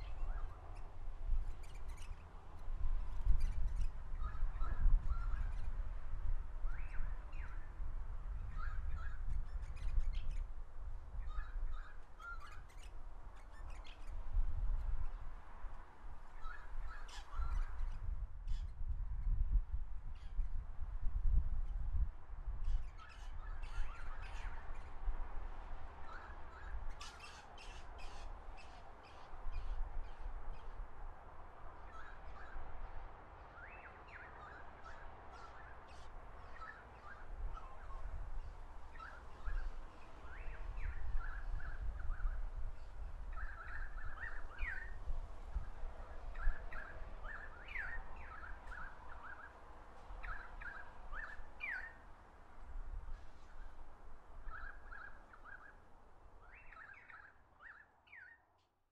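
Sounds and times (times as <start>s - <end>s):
birds chirping: 50.2s - 52.1s, 54.4s - 58.5s.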